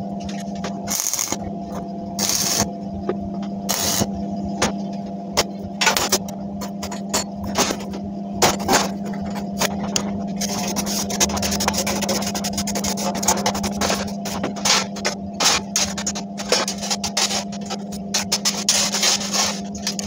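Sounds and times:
steady electrical hum: 0.0 - 20.0
scraping on metal: 10.4 - 20.0.

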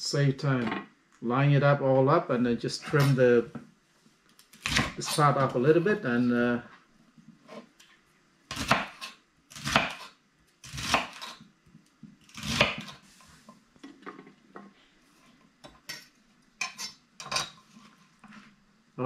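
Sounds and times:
knife cutting celery: 8.5 - 11.4, 12.3 - 13.0.

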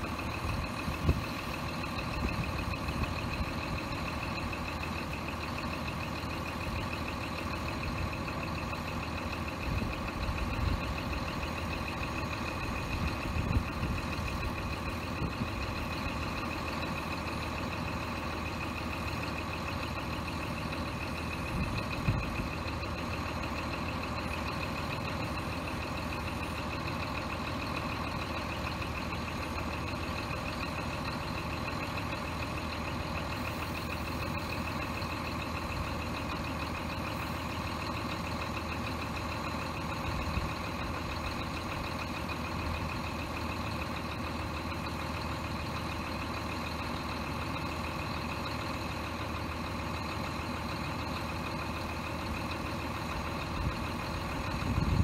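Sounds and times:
truck diesel engine idling: 0.0 - 55.0.

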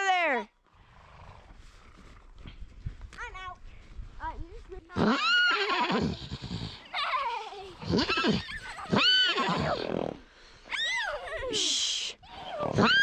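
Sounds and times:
donkey braying: 7.8 - 13.0.

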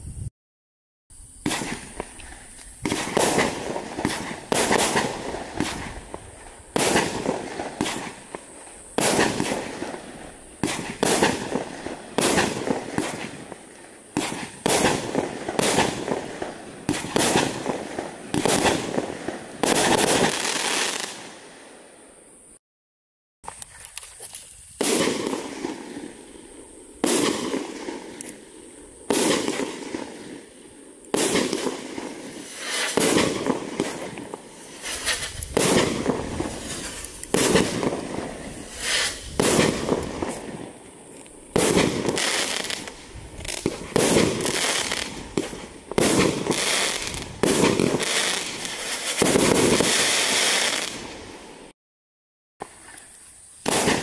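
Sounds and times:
firework cake shots bursting: 6.7 - 8.4, 32.6 - 40.4.

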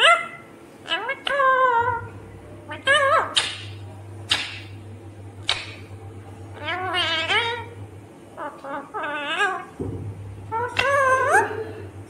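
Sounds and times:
parrot screeching: 0.0 - 2.0, 2.7 - 3.6, 6.6 - 7.8, 8.4 - 9.8, 10.5 - 11.5
parrot warbling calls: 0.0 - 4.7, 6.5 - 7.8, 8.4 - 9.8, 10.4 - 11.7.

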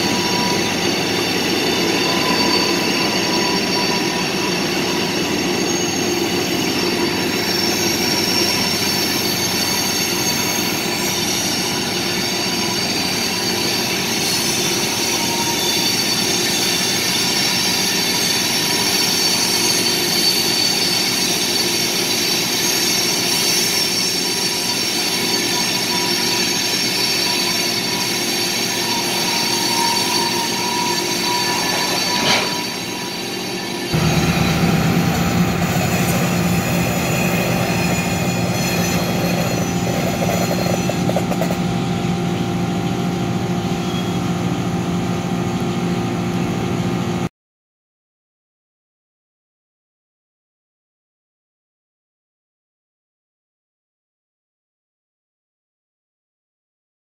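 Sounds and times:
train wheels squealing: 0.0 - 44.8
train rumble: 23.7 - 45.4.

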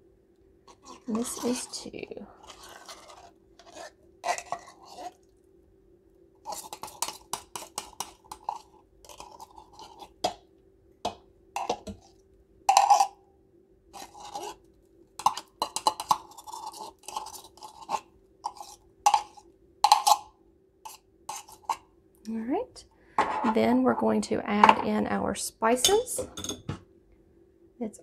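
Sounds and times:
faint steady hum: 0.0 - 28.0
knife scraping metal can: 0.7 - 5.2, 6.4 - 10.2, 14.0 - 20.3, 20.9 - 21.8.

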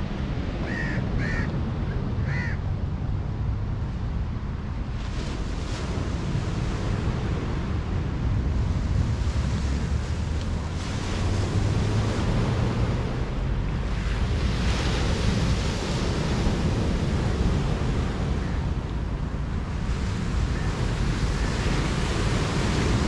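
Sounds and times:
wind buffeting microphone: 0.0 - 23.0
surf breaking on beach: 4.9 - 23.0.

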